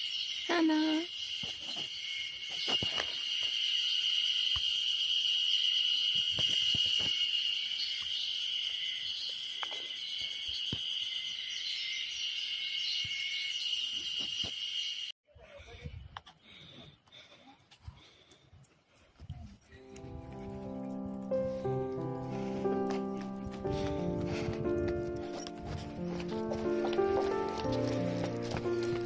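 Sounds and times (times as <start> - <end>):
insects chirring: 0.0 - 15.1.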